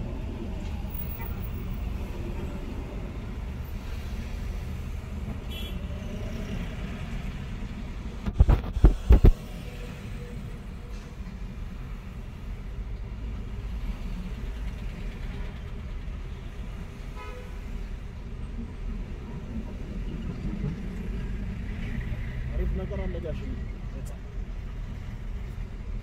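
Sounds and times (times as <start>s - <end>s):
traffic rumble from inside car: 0.0s - 26.0s.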